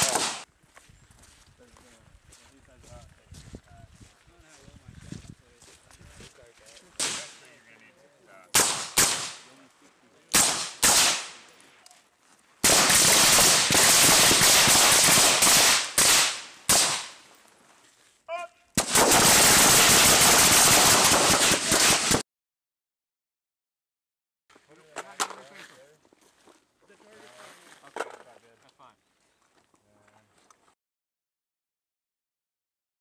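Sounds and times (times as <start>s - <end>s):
suppressed rifle gunfire: 0.0s - 0.4s, 8.6s - 9.4s, 10.3s - 11.5s, 12.6s - 17.2s.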